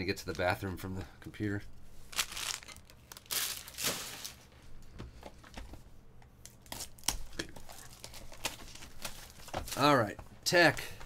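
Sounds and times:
wrappers and card boxes rustling: 2.1s - 4.5s, 6.7s - 10.2s.

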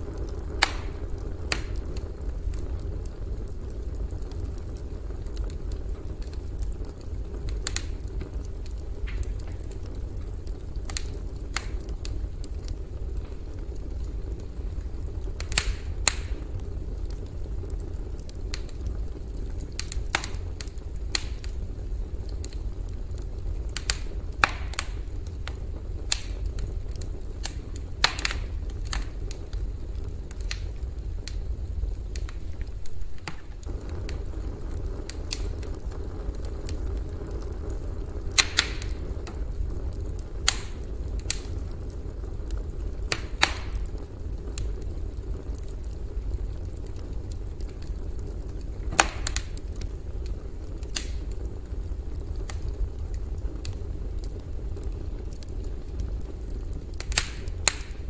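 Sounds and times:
campfire crackling and popping: 0.0s - 58.0s.

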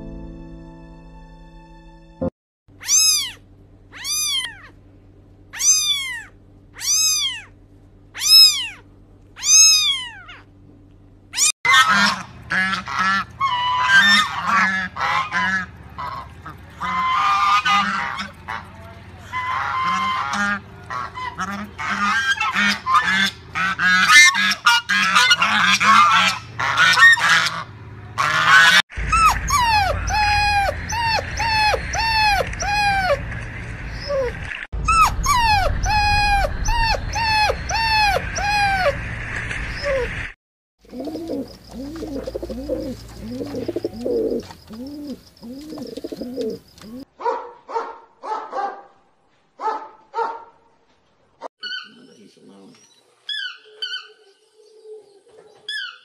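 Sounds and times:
cat meowing: 2.8s - 4.8s, 5.6s - 7.5s, 8.2s - 8.8s, 9.4s - 10.4s
waterfowl honking: 11.7s - 34.0s, 40.9s - 47.0s
dog whimpering: 29.1s - 33.2s, 34.0s - 39.0s.

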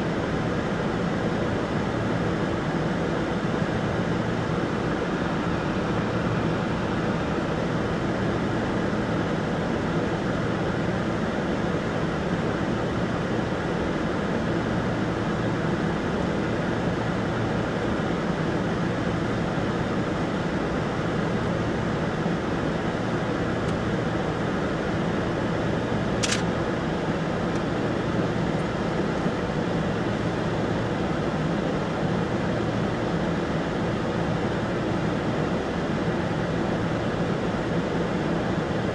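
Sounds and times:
sharp click: 26.2s - 26.5s.

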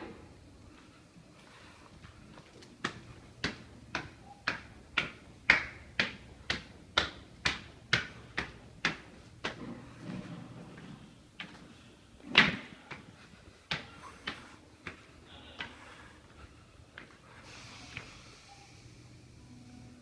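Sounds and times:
footsteps on hard stairs: 1.4s - 17.3s.

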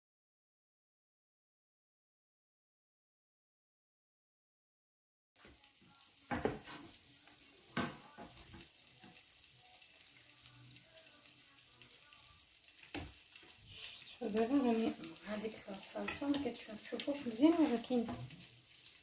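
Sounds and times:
sauce sizzling in a frying pan: 5.4s - 19.0s.

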